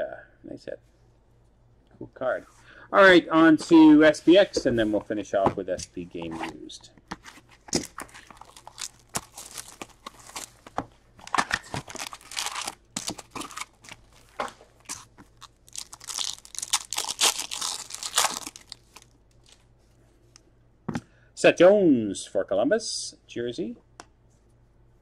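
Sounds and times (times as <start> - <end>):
plastic wrap crinkling and tearing: 7.7 - 19.6.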